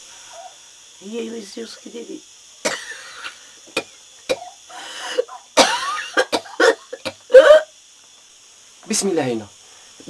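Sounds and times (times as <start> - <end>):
woman coughing: 2.6 - 7.7
breathy gasp: 4.7 - 5.3.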